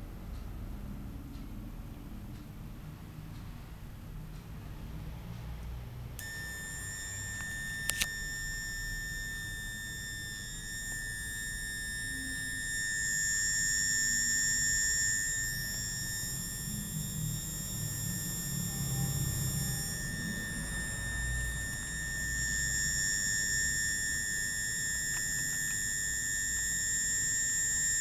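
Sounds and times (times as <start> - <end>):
high-pitched electronic whine: 6.2 - 28.0.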